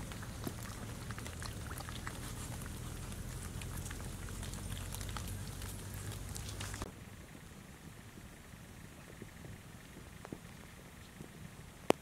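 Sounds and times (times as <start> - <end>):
puppies lapping and chewing food: 0.0 - 6.9
low steady rumble: 0.0 - 12.0.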